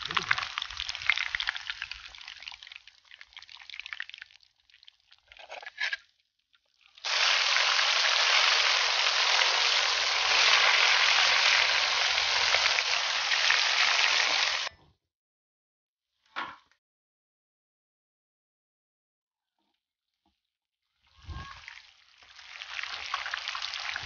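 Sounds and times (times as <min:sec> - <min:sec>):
fish sizzling in hot oil: 0:00.0 - 0:04.9, 0:07.0 - 0:14.7, 0:21.4 - 0:24.0.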